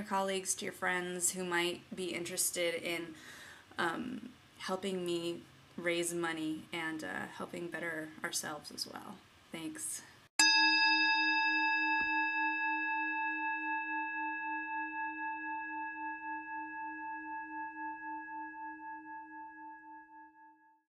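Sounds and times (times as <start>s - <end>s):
singing bowl ringing: 10.4s - 20.8s.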